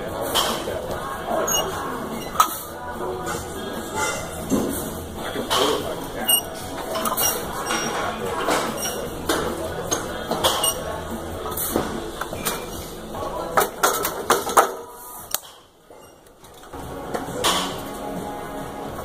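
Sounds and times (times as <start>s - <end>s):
gym background noise: 0.0s - 19.0s
barbell plates clanking: 0.3s - 11.0s.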